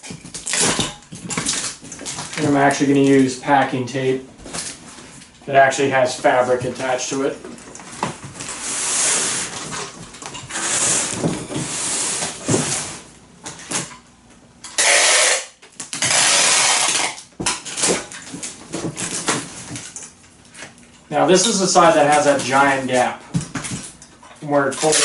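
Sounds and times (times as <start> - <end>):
packing tape pulled off roll: 8.4 - 9.9, 14.7 - 19.9, 24.8 - 25.0.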